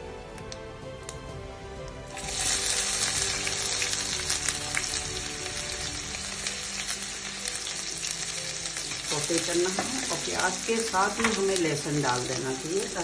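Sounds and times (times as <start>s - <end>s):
onion sizzling in hot oil: 2.1s - 13.0s.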